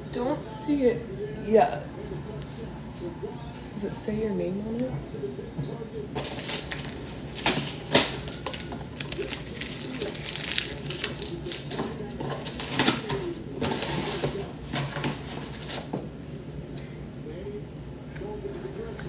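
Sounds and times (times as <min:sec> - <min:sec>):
package wrapping crackling and ripping: 0:06.2 - 0:16.0.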